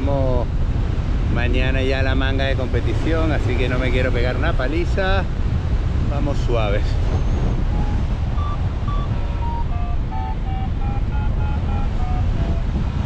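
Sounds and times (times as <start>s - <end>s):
wind rushing over microphone: 0.0s - 13.0s
variometer beeping: 7.1s - 13.0s.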